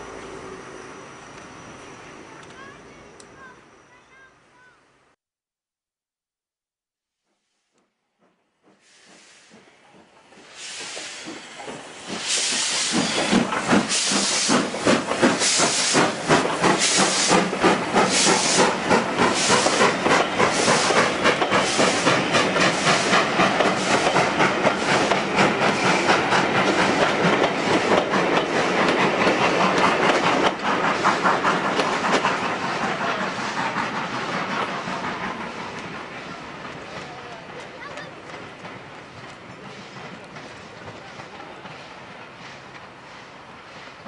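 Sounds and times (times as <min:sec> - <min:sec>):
train coaches rolling by: 0:00.0 - 0:04.8, 0:07.8 - 0:44.0
steam hiss: 0:07.3 - 0:44.0
steam locomotive exhaust beats: 0:07.3 - 0:44.0.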